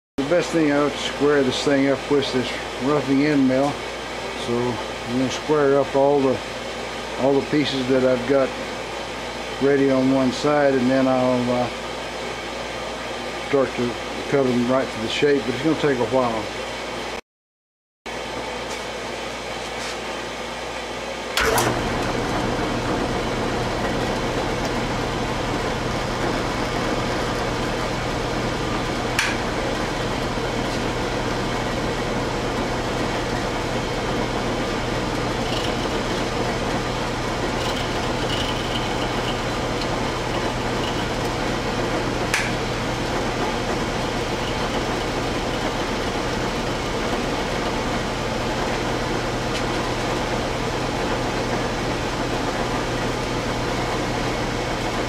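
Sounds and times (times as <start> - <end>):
milling machine cutting metal: 21.4 - 55.0
milling machine switch click: 29.2 - 29.4, 42.3 - 42.6.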